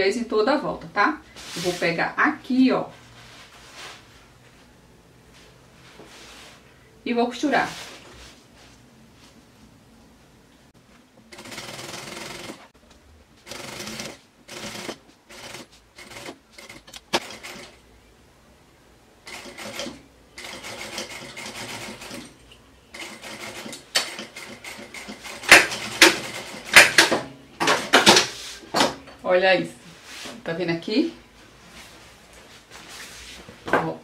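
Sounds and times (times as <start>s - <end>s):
sewing machine running: 11.3s - 12.7s, 13.5s - 17.8s, 19.2s - 22.3s, 22.9s - 27.1s.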